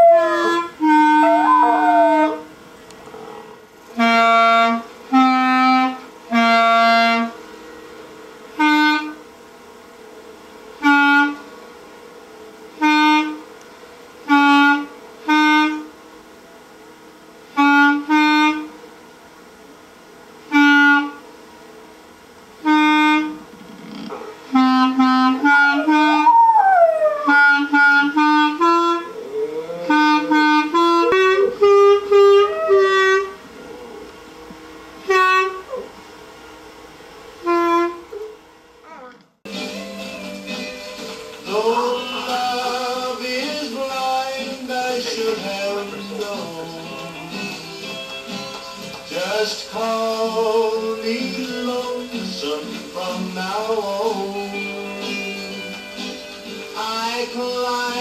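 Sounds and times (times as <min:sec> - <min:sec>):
solo clarinet: 0:00.0 - 0:02.5, 0:04.0 - 0:07.4, 0:14.3 - 0:15.9, 0:17.6 - 0:18.7, 0:20.5 - 0:21.2, 0:22.6 - 0:23.4, 0:24.5 - 0:34.1, 0:35.0 - 0:35.8, 0:37.4 - 0:39.1.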